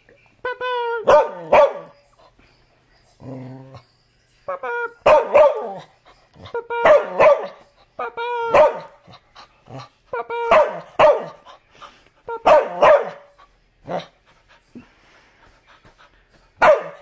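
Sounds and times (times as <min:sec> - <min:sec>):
dog barking: 0:01.0 - 0:02.0, 0:05.0 - 0:05.9, 0:06.8 - 0:07.6, 0:08.5 - 0:09.0, 0:10.5 - 0:11.4, 0:12.4 - 0:13.3, 0:16.6 - 0:17.0.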